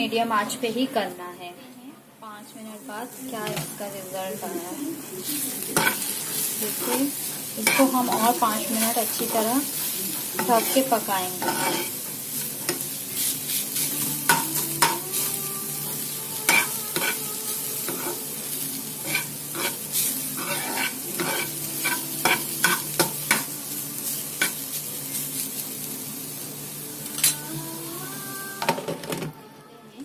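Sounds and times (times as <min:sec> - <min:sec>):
beetroot sizzling in a pan: 0:02.5 - 0:28.9
spatula scraping and knocking pan: 0:10.4 - 0:11.9.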